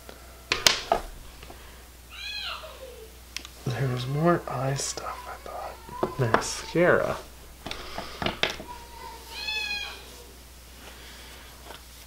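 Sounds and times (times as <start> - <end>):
cat meowing: 2.1 - 3.0, 8.6 - 10.4.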